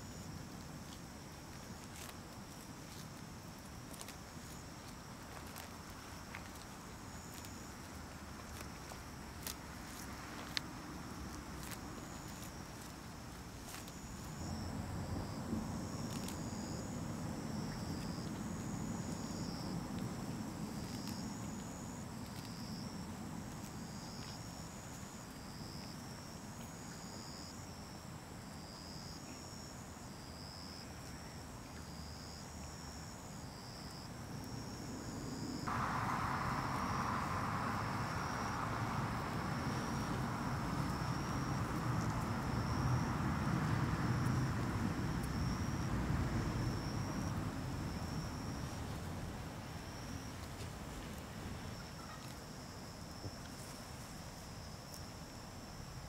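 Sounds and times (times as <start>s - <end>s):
insects chirping: 0.0s - 56.0s
low background rumble: 35.1s - 51.6s
steady hiss: 35.4s - 45.4s.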